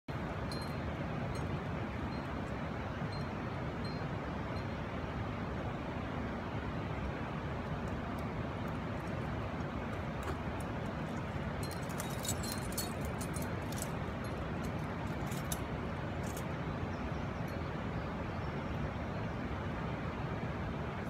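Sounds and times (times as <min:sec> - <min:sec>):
steady low rumble: 0:00.1 - 0:21.0
climbing gear clinking: 0:08.2 - 0:16.6.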